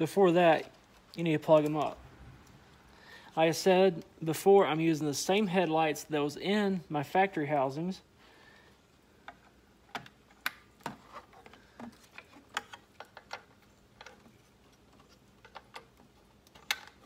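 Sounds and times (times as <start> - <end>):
plastic parts clicking: 9.2 - 17.0.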